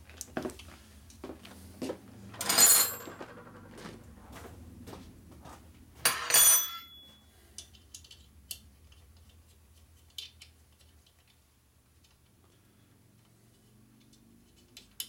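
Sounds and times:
metal tools clattering: 0:02.3 - 0:03.7, 0:06.0 - 0:08.2.

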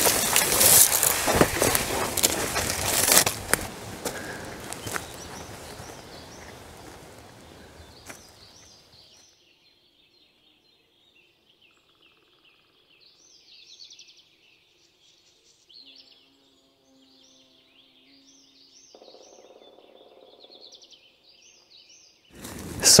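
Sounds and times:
footsteps rustling through leaves: 0:00.0 - 0:09.2, 0:22.3 - 0:23.0
songbirds chirping: 0:00.0 - 0:23.0.

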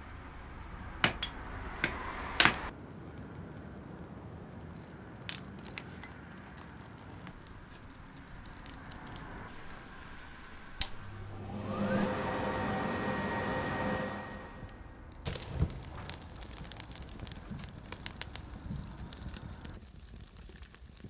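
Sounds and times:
paper crackling in fire: 0:02.8 - 0:11.0, 0:14.6 - 0:21.0
steady hum with rising whine: 0:07.4 - 0:15.3.

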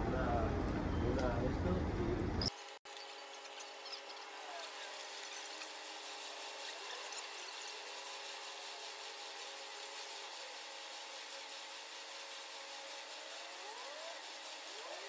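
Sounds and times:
faint rising squeaks: 0:02.4 - 0:07.8
rowing machine flywheels whirring: 0:02.5 - 0:15.0.

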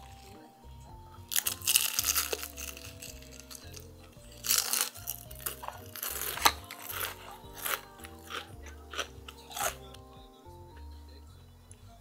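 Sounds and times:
light background music: 0:00.0 - 0:12.0
crunching fried chicken: 0:01.2 - 0:10.0.

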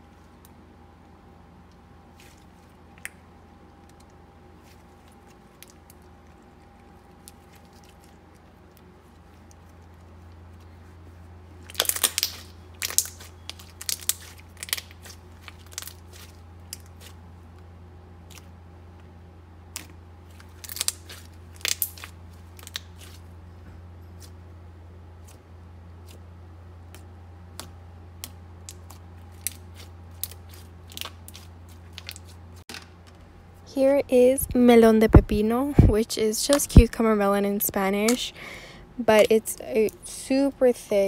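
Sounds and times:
steady low hum: 0:00.0 - 0:41.0
slime squished by hand: 0:02.1 - 0:17.2, 0:18.2 - 0:18.6, 0:19.7 - 0:23.3, 0:26.9 - 0:32.5.

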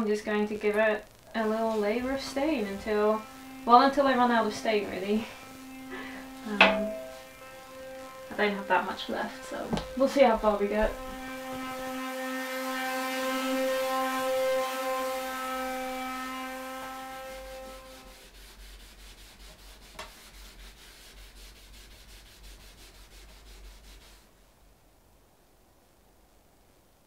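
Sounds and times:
brush strokes on wood: 0:01.4 - 0:12.1, 0:17.8 - 0:24.3
orbital sander running: 0:01.4 - 0:18.2.

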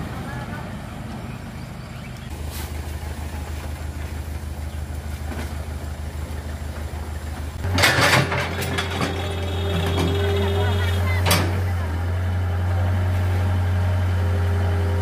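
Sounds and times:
excavator diesel engine: 0:00.0 - 0:15.0
clattering: 0:07.6 - 0:10.2.

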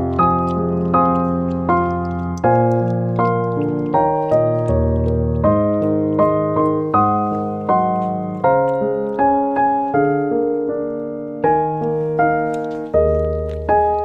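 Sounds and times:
slow piano chords: 0:00.0 - 0:14.0.

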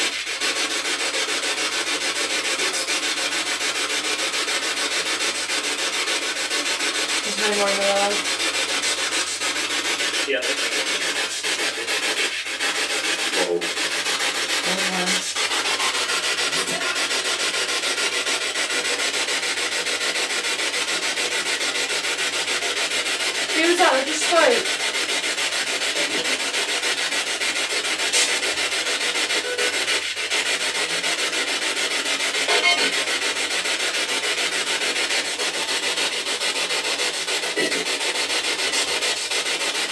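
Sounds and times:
snatches of broadcast sound: 0:07.2 - 0:20.2, 0:23.6 - 0:24.7, 0:25.6 - 0:31.3, 0:32.2 - 0:33.3, 0:37.3 - 0:39.5
radio static hiss: 0:16.5 - 0:17.1, 0:32.5 - 0:32.9.

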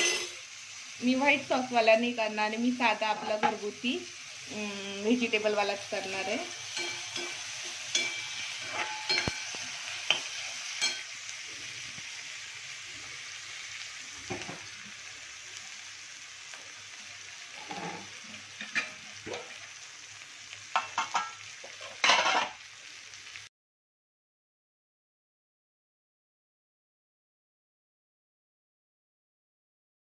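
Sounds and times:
steel spatula scraping pan: 0:00.0 - 0:00.4, 0:06.0 - 0:11.2, 0:17.6 - 0:19.0, 0:20.8 - 0:22.6
vegetables sizzling in oil: 0:00.0 - 0:23.5.

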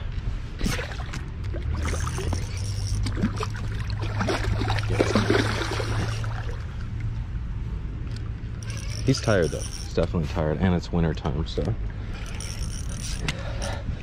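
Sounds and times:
fish thrashing and splashing: 0:00.6 - 0:06.9.

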